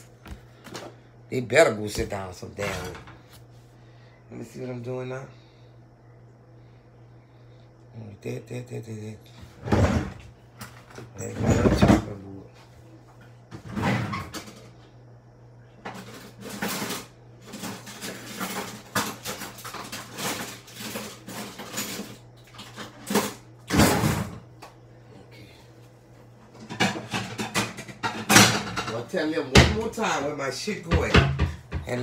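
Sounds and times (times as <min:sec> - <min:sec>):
steady low hum: 0:00.0 - 0:32.0
dishes and pots clinking: 0:26.6 - 0:29.8.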